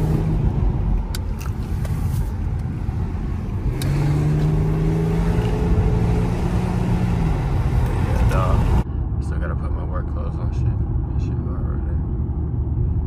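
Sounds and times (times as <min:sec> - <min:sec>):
car engine: 0:00.0 - 0:13.0
road rumble: 0:00.0 - 0:13.0.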